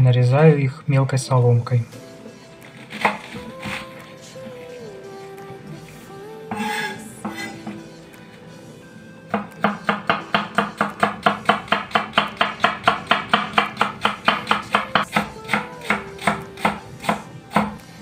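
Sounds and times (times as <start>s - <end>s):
knife slicing cabbage on board: 2.8s - 3.8s.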